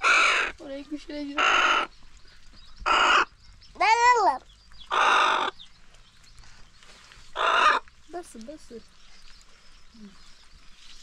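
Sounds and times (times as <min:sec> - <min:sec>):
bird squawk: 0:00.0 - 0:00.6, 0:01.3 - 0:02.0, 0:02.8 - 0:05.6, 0:07.3 - 0:07.9
harsh bird calls: 0:00.0 - 0:11.0.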